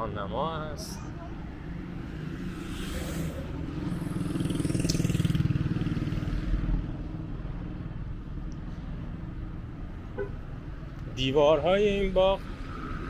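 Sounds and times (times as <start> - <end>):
traffic hum: 0.0 - 13.0
motorcycle passing: 1.0 - 8.3.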